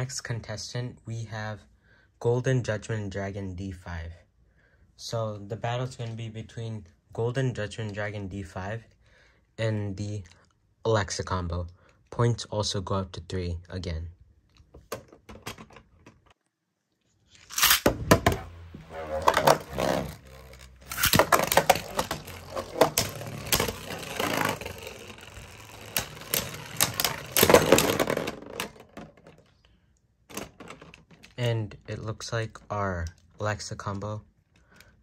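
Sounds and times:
spinning top bursting apart: 17.4s - 28.4s
spinning tops whirring: 18.5s - 28.6s
spinning tops clacking: 19.1s - 28.7s.

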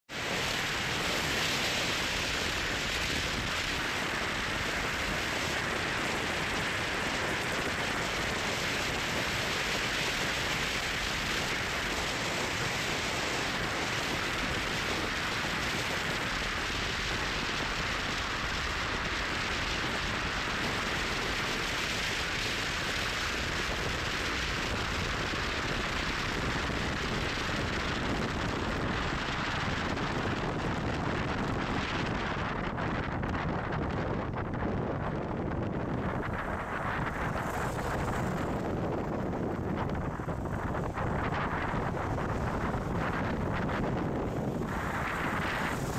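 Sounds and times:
car road and wind noise: 0.0s - 45.9s.

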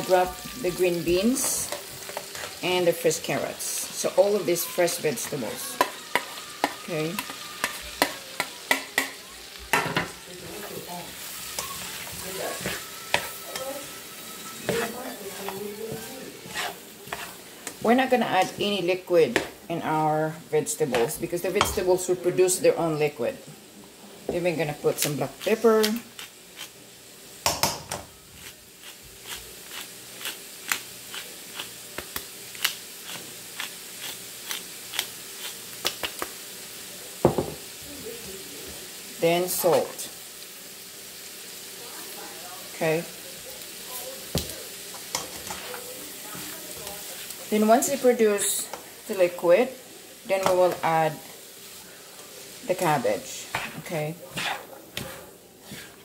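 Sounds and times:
spatula scraping a skillet: 0.0s - 19.6s, 24.9s - 26.8s, 28.4s - 31.8s, 44.2s - 49.6s, 50.3s - 56.0s
food sizzling: 0.0s - 56.0s.

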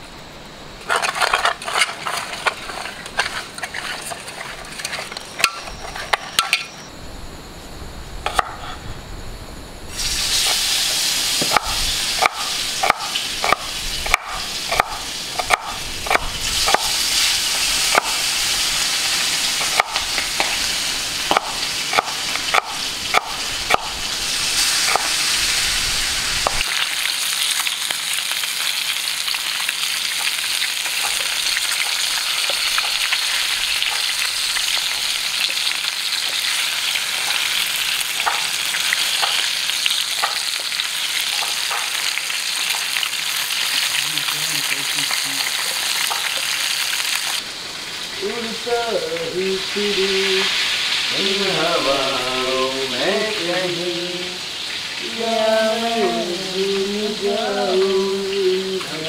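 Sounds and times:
wooden spatula stirring: 0.8s - 6.3s
fish sizzling in oil: 9.9s - 58.8s
knife chopping on wooden board: 11.4s - 16.9s, 21.3s - 23.9s.

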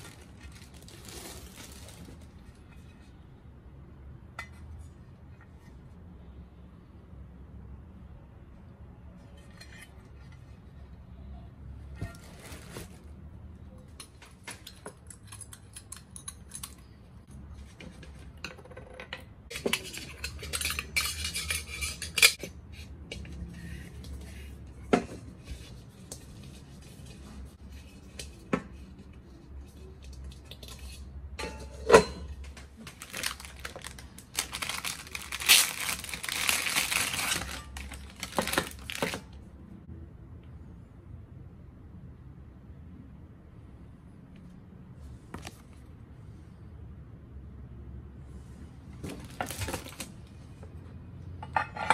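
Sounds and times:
plastic wrapping rustling: 0.0s - 2.8s, 12.0s - 13.2s, 32.6s - 39.4s, 49.1s - 50.3s
metal cookware clinking: 18.5s - 22.5s, 31.3s - 32.4s, 51.4s - 51.9s.

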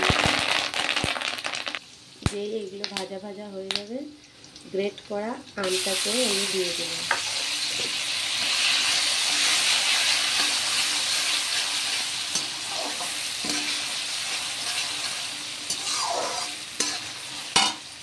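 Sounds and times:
food sizzling in hot oil: 0.0s - 18.0s
metal spatula scraping pan: 7.1s - 17.9s.

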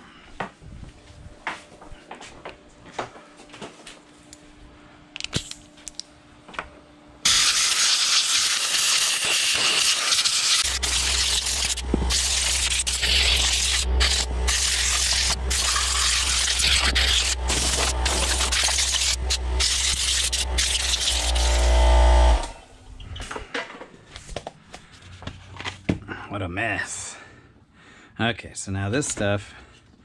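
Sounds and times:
compressed air hiss: 7.3s - 21.0s.

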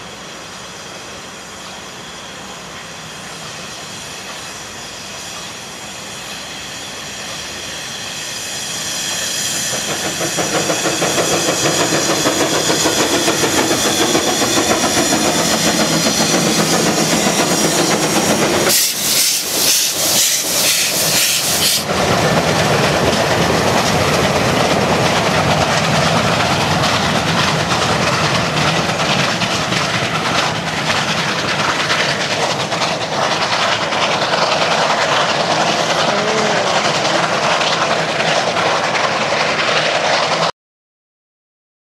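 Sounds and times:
loud hiss of steam: 0.0s - 23.0s, 23.6s - 40.1s
steam train passing: 0.0s - 40.5s
wheels clattering on track: 9.4s - 40.5s.

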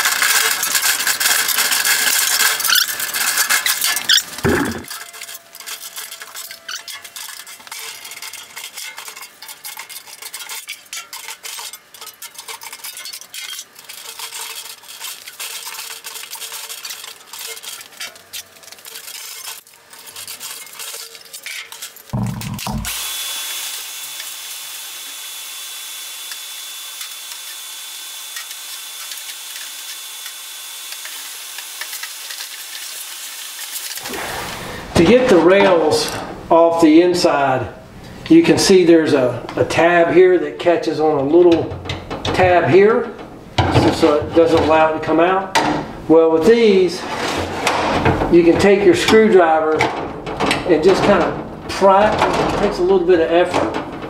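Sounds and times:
metallic scraping and rattling: 0.0s - 36.4s, 38.0s - 54.0s
shop vacuum running: 4.4s - 4.9s, 22.2s - 32.4s.

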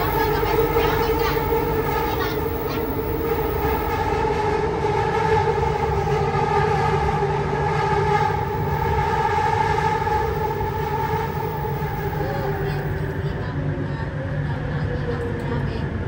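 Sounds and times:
high-pitched train whine: 0.0s - 16.0s
metro train rumble: 0.0s - 16.0s.

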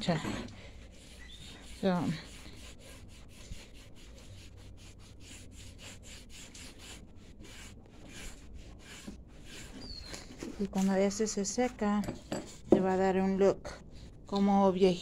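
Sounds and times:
cloth scrubbing wood: 0.0s - 11.9s.

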